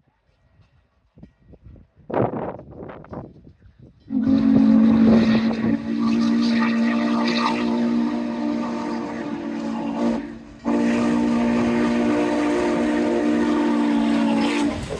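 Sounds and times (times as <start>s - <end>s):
steam locomotive whistle: 4.1s - 14.9s.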